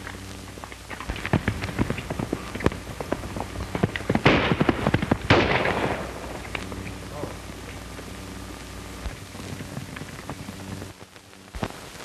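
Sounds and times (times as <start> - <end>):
horses galloping: 0.0 - 8.0, 9.1 - 10.9
gunshots with hissing tail: 1.1 - 7.5.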